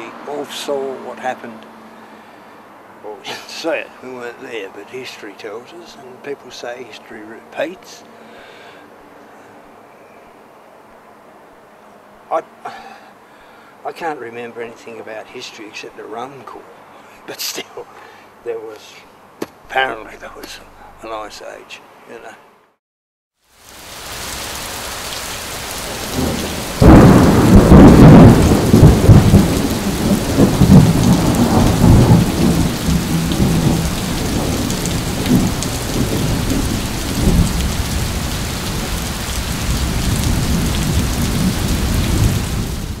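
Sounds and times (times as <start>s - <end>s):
steady rain: 23.4s - 43.0s
rumbling thunderclap: 25.9s - 43.0s.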